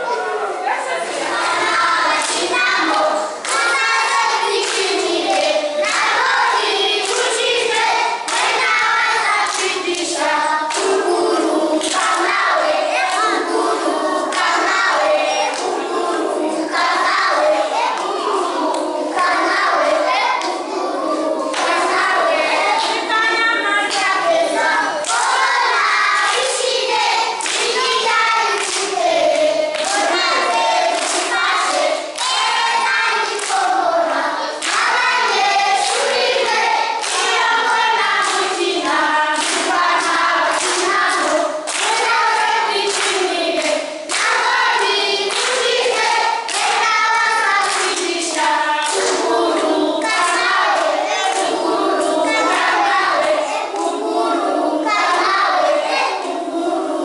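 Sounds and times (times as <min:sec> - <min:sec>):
children singing in chorus: 0:00.0 - 0:57.0
children clapping hands: 0:01.3 - 0:16.1, 0:16.7 - 0:20.7, 0:21.4 - 0:56.4.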